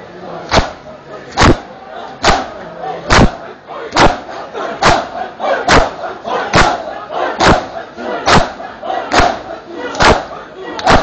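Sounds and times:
crowd shouting: 0:00.5 - 0:11.0
hands slapping chests: 0:07.4 - 0:07.7, 0:09.1 - 0:11.0.

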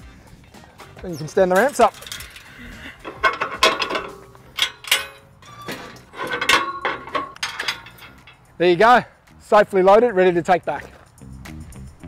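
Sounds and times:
metal ramps clanking and rattling: 0:01.1 - 0:08.5.

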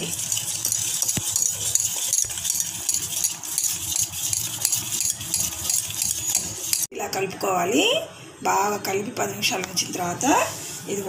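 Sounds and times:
whisk scraping steel bowl: 0:00.0 - 0:06.9.

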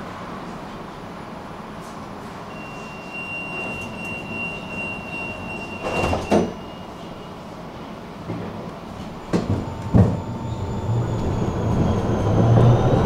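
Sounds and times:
tram background noise: 0:00.0 - 0:13.0
high warning tone: 0:02.5 - 0:07.4
tram doors thumping shut: 0:05.7 - 0:06.7, 0:08.2 - 0:10.4.

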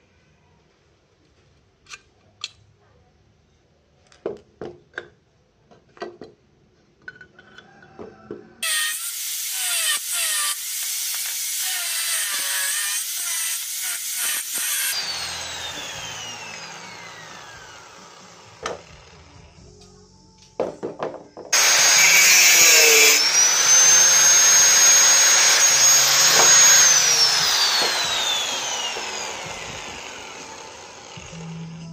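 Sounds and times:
angle grinder cutting metal: 0:08.6 - 0:19.3, 0:21.5 - 0:31.7
grinder disc winding down whine: 0:08.6 - 0:19.4, 0:21.6 - 0:31.9.

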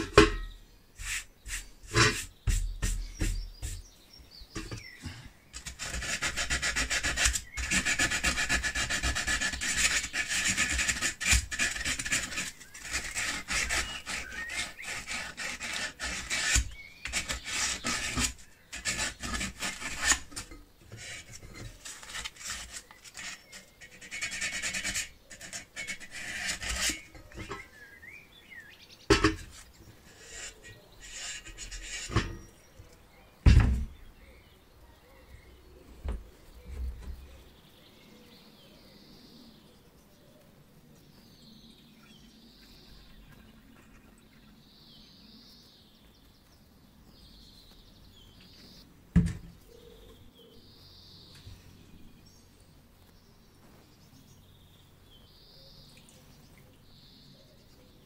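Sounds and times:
small knocks on metal: 0:00.0 - 0:00.6, 0:29.1 - 0:29.6
hands scraping metal stove: 0:00.0 - 0:03.9, 0:04.6 - 0:27.8, 0:29.1 - 0:32.6.

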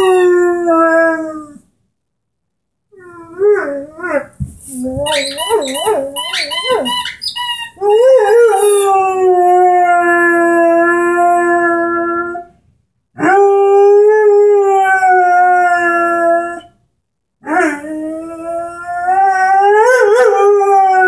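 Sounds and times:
dog whining: 0:00.0 - 0:01.6, 0:03.0 - 0:10.6
dog howling: 0:05.0 - 0:12.5, 0:17.4 - 0:21.0.

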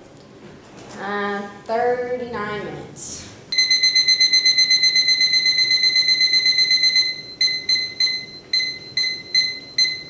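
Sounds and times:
kitchen timer beeping: 0:03.5 - 0:10.0.

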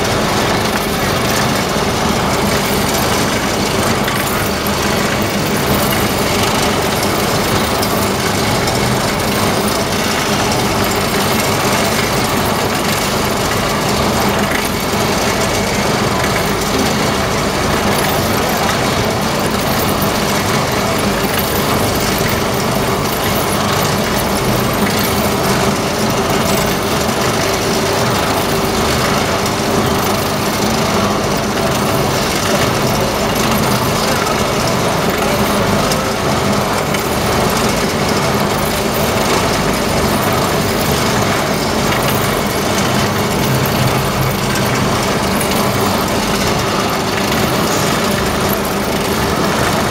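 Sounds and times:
furnace machine drone: 0:00.0 - 0:49.9.

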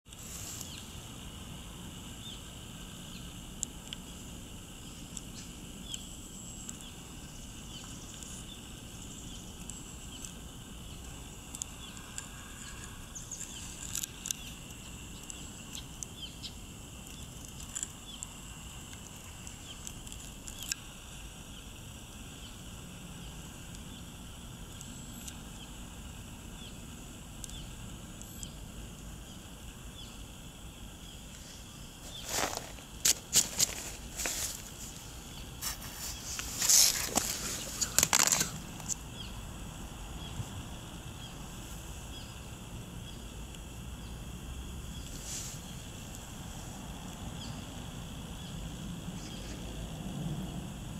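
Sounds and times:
small chirps: 0:00.1 - 0:01.4, 0:02.1 - 0:25.8, 0:26.4 - 0:39.4
small ticks: 0:00.1 - 0:39.4, 0:42.1 - 0:49.8.

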